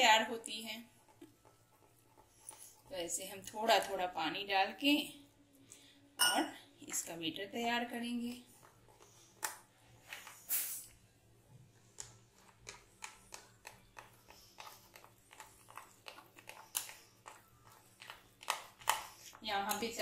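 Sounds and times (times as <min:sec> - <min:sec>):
spoon stirring thick batter: 0:00.0 - 0:05.1, 0:06.9 - 0:10.4, 0:11.4 - 0:20.0
wet squishing with scrapes: 0:11.8 - 0:20.0.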